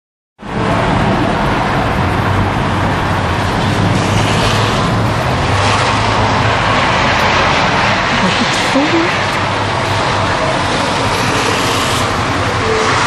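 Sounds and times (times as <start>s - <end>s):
car tyres swishing on wet street: 0.4s - 13.0s.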